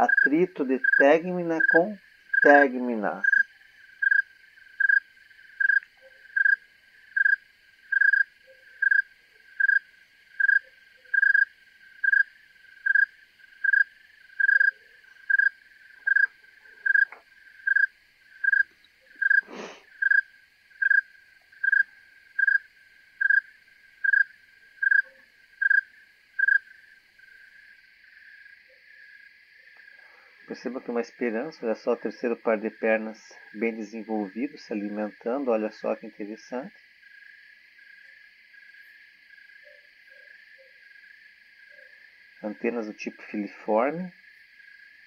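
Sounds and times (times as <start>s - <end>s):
cricket chirping: 0.0s - 45.0s
faint hiss of insects: 0.0s - 45.0s.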